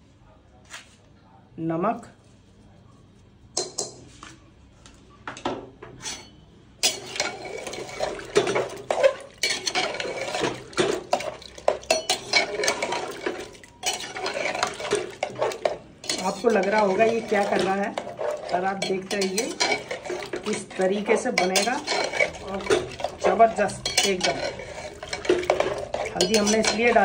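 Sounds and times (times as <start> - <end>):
spoon clattering in metal pot: 6.0 - 27.0.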